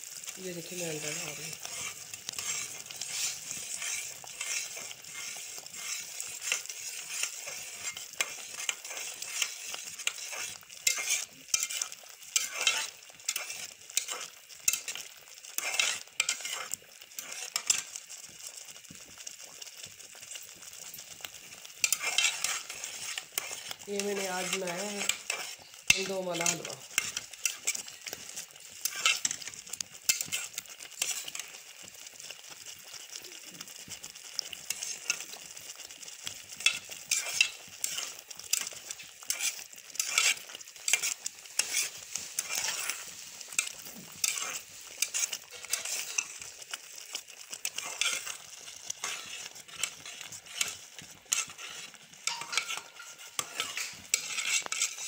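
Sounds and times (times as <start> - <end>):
food sizzling in oil: 0.0 - 55.0
spatula scraping steel pot: 0.5 - 18.0, 20.6 - 31.6, 36.3 - 55.0.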